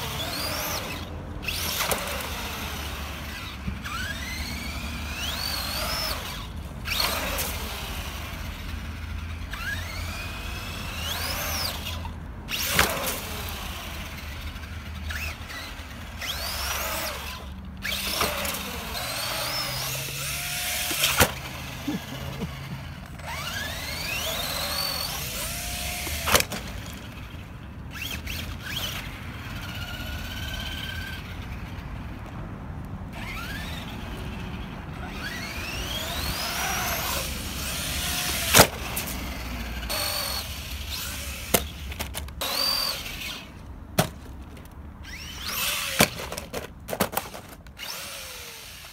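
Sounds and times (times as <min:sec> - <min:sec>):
electric motor whining: 0:00.0 - 0:31.9, 0:33.1 - 0:43.6, 0:45.0 - 0:46.3, 0:47.3 - 0:48.9
tyres rolling on concrete: 0:28.2 - 0:48.9.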